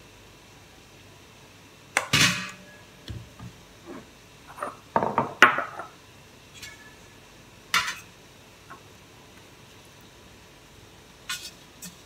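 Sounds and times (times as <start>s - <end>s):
dishes knocking and clinking: 4.5s - 6.0s.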